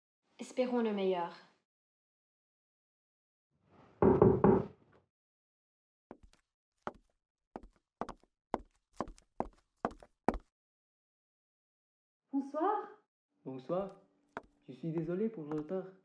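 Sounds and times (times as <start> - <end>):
heavy knocks on a door: 4.0 - 4.8
footsteps on tiled floor: 6.1 - 10.5, 14.4 - 15.7.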